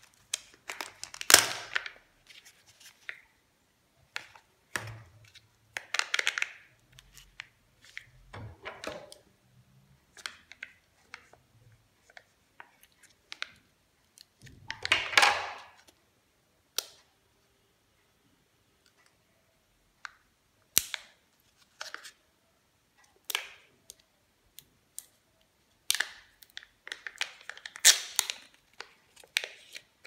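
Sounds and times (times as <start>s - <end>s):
candy wrappers crinkling: 0.0s - 3.2s, 25.8s - 30.0s.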